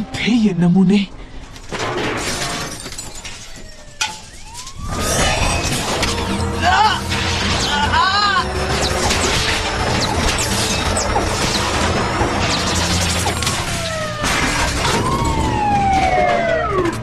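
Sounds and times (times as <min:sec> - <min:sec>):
crashing and rumbling effects: 0:01.5 - 0:17.0
falling electronic tones: 0:03.1 - 0:17.0
dramatic music: 0:04.4 - 0:17.0.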